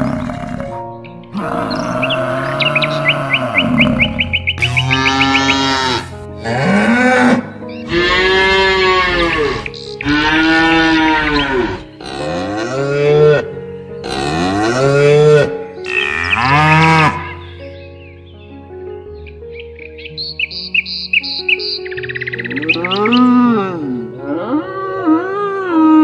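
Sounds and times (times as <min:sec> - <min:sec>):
cow mooing: 0:00.0 - 0:17.4.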